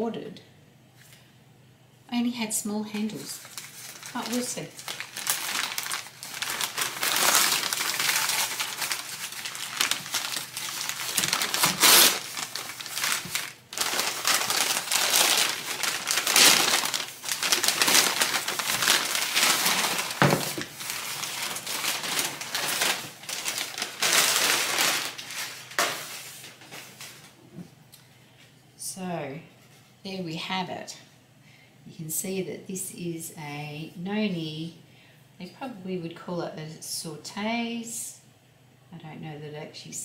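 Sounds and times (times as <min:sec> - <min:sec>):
packing paper crumpling: 0:03.1 - 0:27.4.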